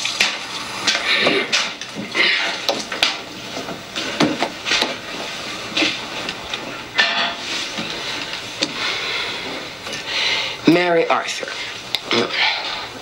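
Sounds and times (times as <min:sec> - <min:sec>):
water running into sink: 0:00.0 - 0:03.4
dishes clinking and knocking: 0:07.0 - 0:07.4.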